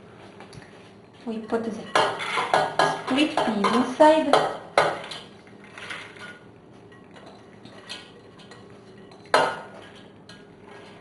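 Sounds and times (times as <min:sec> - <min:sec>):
split peas scraped into pot: 0:10.6 - 0:11.0.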